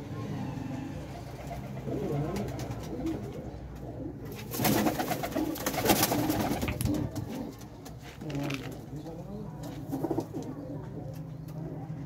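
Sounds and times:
pigeons cooing: 0.2 - 12.0
clatter and rustling: 5.8 - 10.5.

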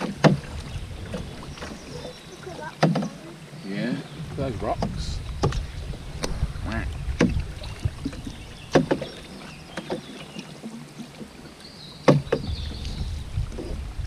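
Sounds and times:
paddle splashing in water: 0.0 - 14.0
low rumble: 4.1 - 8.6.

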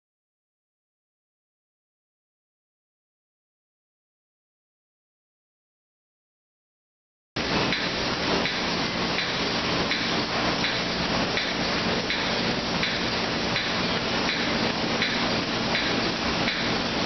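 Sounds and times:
workshop machinery noise: 7.4 - 17.0.

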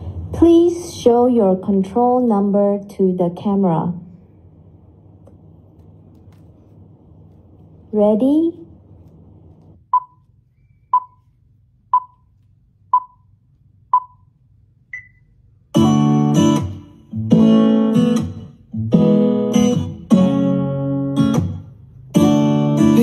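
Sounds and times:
countdown timer beeps: 9.9 - 10.2, 10.9 - 11.2, 11.9 - 12.2, 12.9 - 13.3, 13.9 - 14.3, 14.9 - 15.2
strummed guitar music: 15.7 - 23.0.

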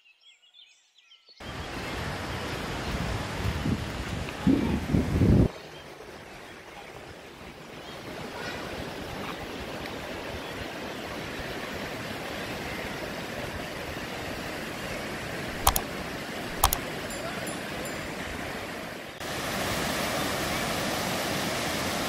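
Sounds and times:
waves breaking on beach: 1.4 - 22.0
sharp clicks: 15.6 - 15.8, 16.6 - 16.8.

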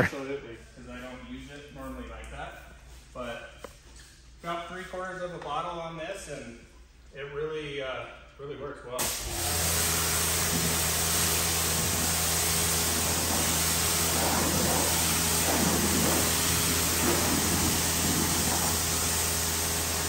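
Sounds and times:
pressure washer spray hissing: 9.0 - 20.0
washer motor and pump hum: 9.0 - 20.0.

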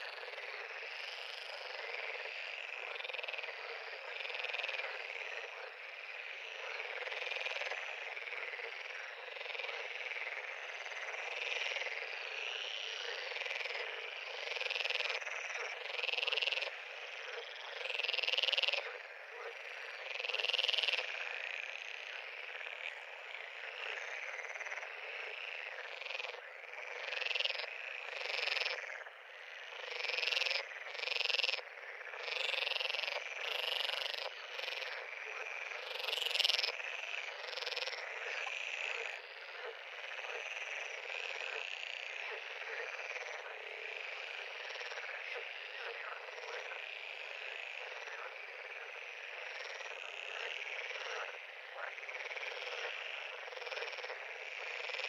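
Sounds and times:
frog chorus: 0.0 - 55.0
single frog calls: 0.0 - 55.0.

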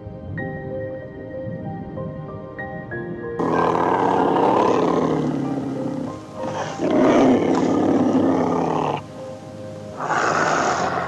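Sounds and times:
background music: 0.0 - 11.0
animal long rough calls: 3.4 - 9.1, 10.0 - 11.0.

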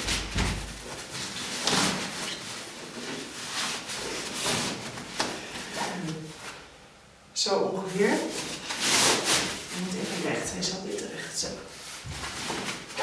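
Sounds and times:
plastic cover rustling and crinkling: 0.0 - 6.6, 8.1 - 10.6, 11.7 - 13.0.

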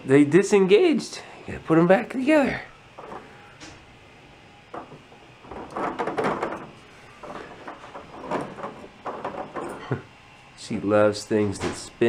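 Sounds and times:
plastic parts clattering: 4.7 - 9.9.

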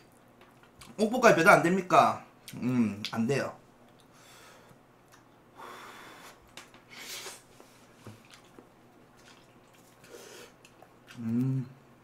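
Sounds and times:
person chewing and slurping noodles: 7.0 - 11.6.

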